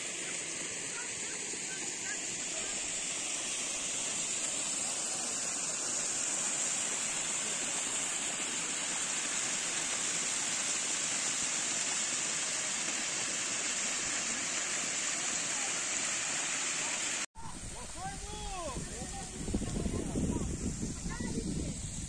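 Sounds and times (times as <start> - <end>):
waterfall rushing and splashing: 0.0 - 17.3.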